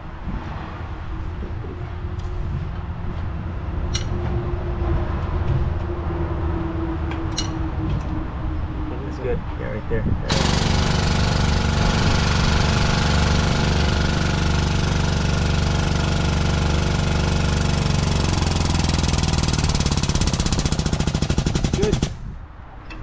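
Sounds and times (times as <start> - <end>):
hydraulic pump running: 10.2 - 22.2.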